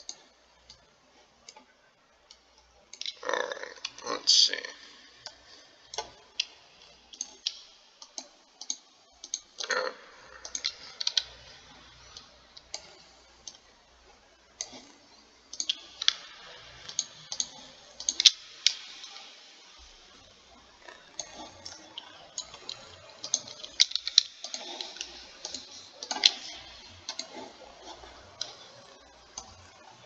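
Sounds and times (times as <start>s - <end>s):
computer mouse clicking: 0.0s - 4.2s, 5.2s - 30.0s.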